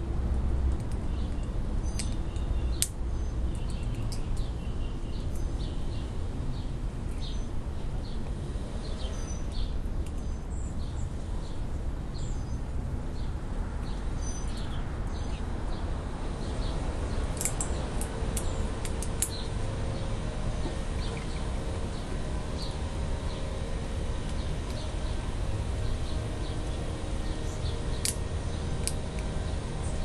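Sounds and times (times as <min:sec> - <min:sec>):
steady low rumble: 0:00.0 - 0:30.0
squirrel gnawing walnut shell: 0:16.4 - 0:30.0.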